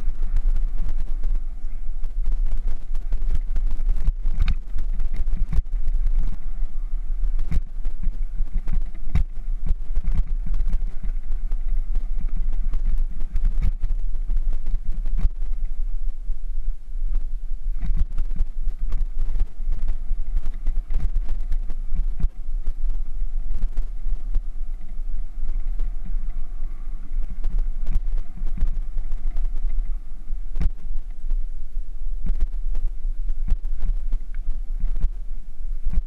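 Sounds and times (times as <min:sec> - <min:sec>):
wind rumble on microphone: 0:00.0 - 0:36.0.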